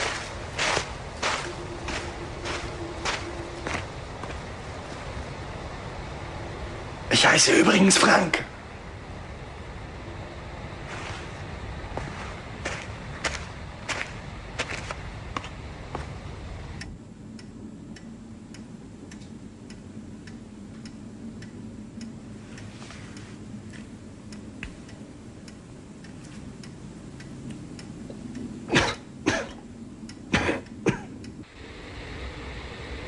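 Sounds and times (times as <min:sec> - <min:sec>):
low hum: 0:00.0 - 0:33.0
faint regular ticking: 0:08.6 - 0:31.6
person coughing: 0:28.7 - 0:29.6, 0:30.3 - 0:31.1.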